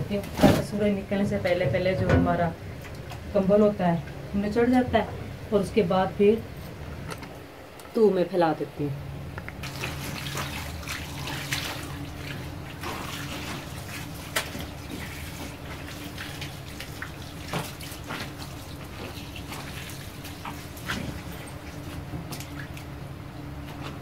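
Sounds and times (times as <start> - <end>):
steady low hum: 0.0 - 24.0
water pouring from a hose: 9.6 - 21.8
splashes of trodden wet blanket: 9.6 - 22.9.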